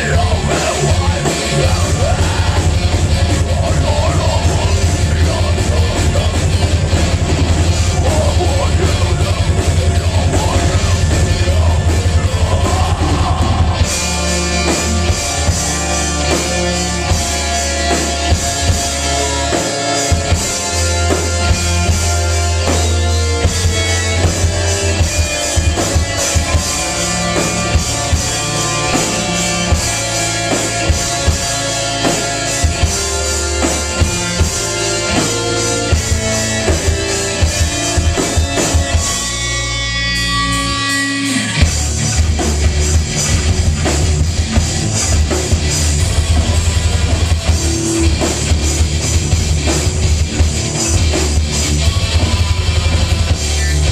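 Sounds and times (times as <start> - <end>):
drum kit with cymbals: 0.0 - 53.9
rock band playing: 0.0 - 53.9.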